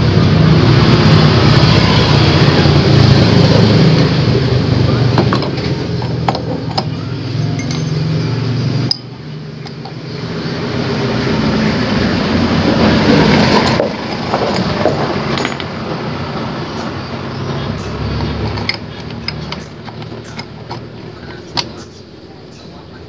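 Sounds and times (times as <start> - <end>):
low mechanical rumble: 0.0 - 23.0
light metallic clinks: 7.5 - 8.0.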